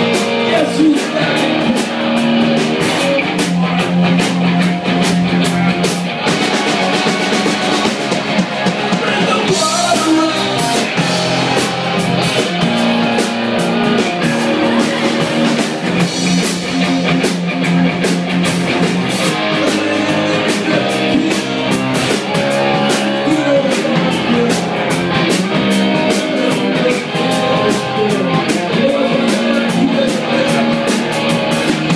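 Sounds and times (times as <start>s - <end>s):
person singing: 0.0s - 4.0s, 8.7s - 11.6s, 12.3s - 16.7s, 19.2s - 31.9s
distorted electric guitars: 0.0s - 31.9s
drum kit: 0.0s - 31.9s.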